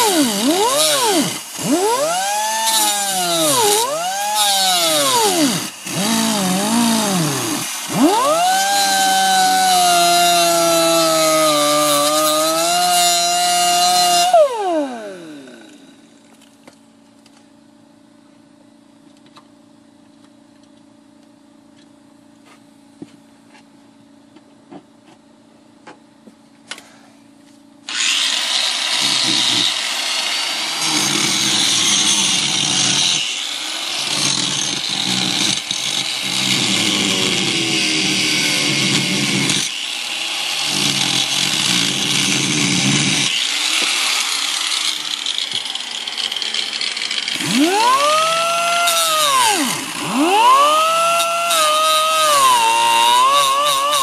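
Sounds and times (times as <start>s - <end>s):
grinder cutting sheet metal: 0.0s - 16.0s, 27.9s - 54.0s.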